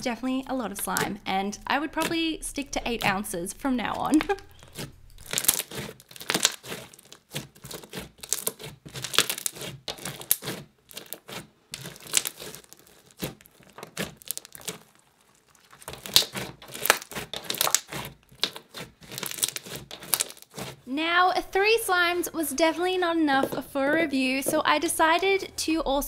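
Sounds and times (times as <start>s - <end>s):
slime squeezed with crackling pops: 4.1s - 20.8s.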